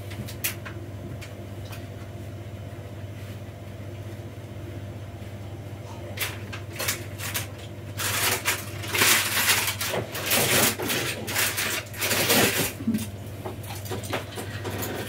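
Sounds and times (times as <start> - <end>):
low steady hum: 0.0 - 15.0
plastic bag rustling: 6.8 - 13.0.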